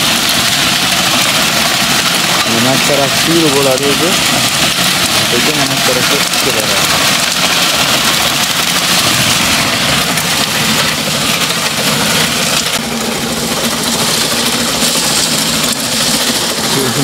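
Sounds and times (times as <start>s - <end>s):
compost rattling through mesh: 0.0s - 12.9s
rotating drum sieve running: 0.0s - 17.0s.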